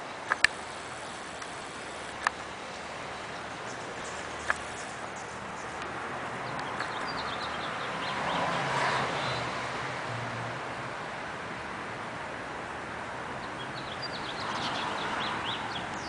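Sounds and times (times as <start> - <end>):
steady background noise: 0.0 - 16.0
sharp click: 0.3 - 2.4.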